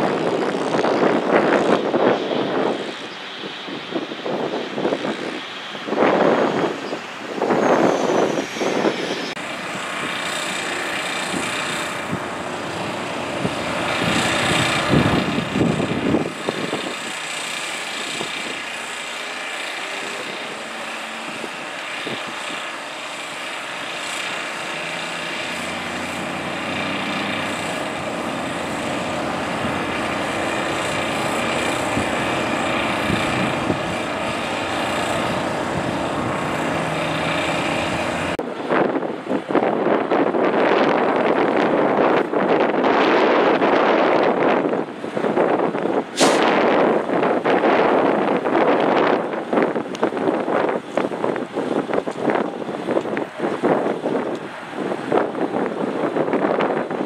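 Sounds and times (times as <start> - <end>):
rushing swells: 0.0 - 38.9
engine drone: 0.0 - 57.0.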